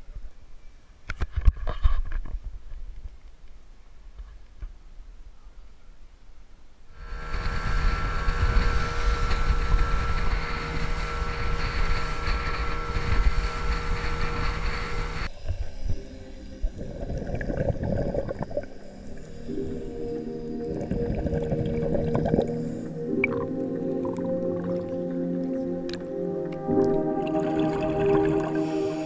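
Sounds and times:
motorboat engine drone: 0:07.0 - 0:15.3, 0:18.7 - 0:29.0
wind and water rushing: 0:07.0 - 0:19.5
uneven underwater sound: 0:07.0 - 0:29.0.

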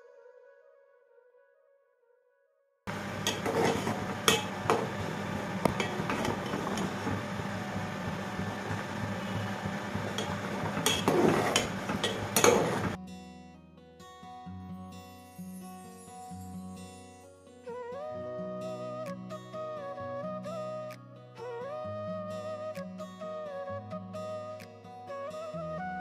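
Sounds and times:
music: 0:00.0 - 0:26.0
spatula scraping metal pot: 0:03.2 - 0:05.0, 0:10.1 - 0:13.0.

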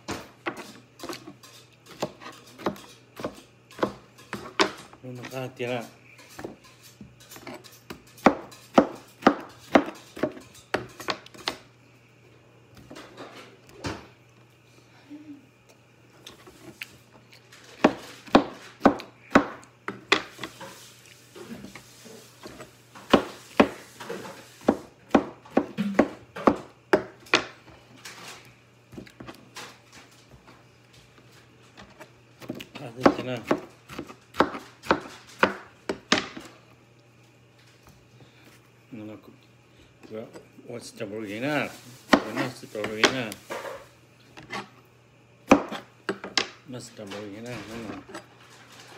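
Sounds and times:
knife chopping on cutting board: 0:00.0 - 0:11.6, 0:17.7 - 0:20.6, 0:21.5 - 0:27.6, 0:31.8 - 0:36.5, 0:42.0 - 0:43.8, 0:45.4 - 0:46.5.

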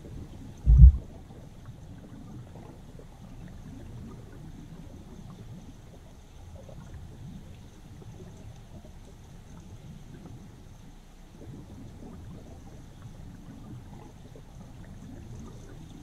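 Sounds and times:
river water heard underwater: 0:00.0 - 0:16.0
faint ticks: 0:04.8 - 0:16.0.

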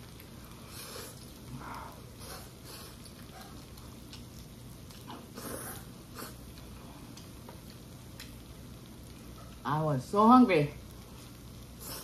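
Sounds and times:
person chewing noodles: 0:00.1 - 0:08.3.

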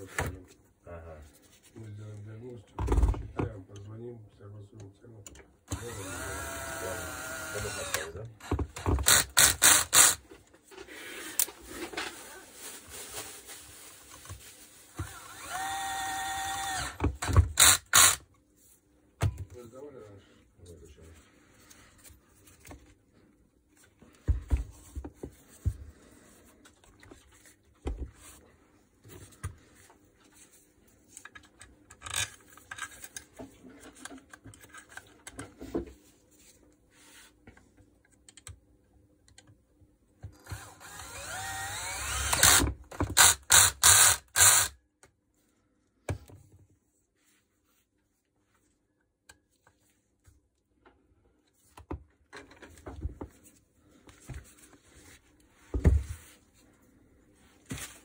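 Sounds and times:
cordless drill whining: 0:05.7 - 0:10.2, 0:15.0 - 0:18.2, 0:40.4 - 0:44.8.

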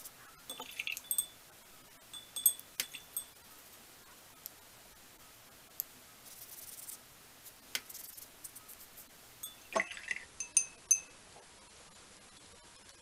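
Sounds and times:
glass clinking: 0:00.5 - 0:01.5, 0:02.1 - 0:03.4, 0:09.4 - 0:11.2
paintbrush scrubbing: 0:06.2 - 0:09.1.

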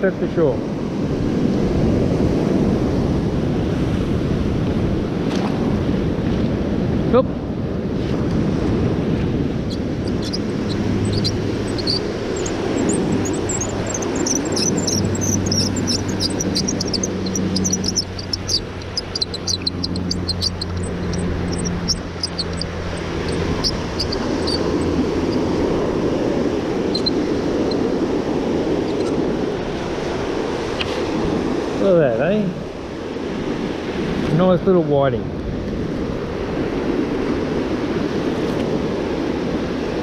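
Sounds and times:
surf washing: 0:00.0 - 0:40.0
wind on microphone: 0:00.0 - 0:40.0
propeller aircraft drone: 0:07.4 - 0:30.6.

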